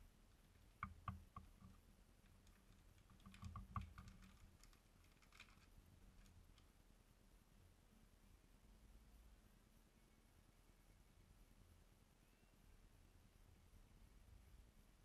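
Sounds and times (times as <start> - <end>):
plastic bag crinkling: 4.0 - 6.3.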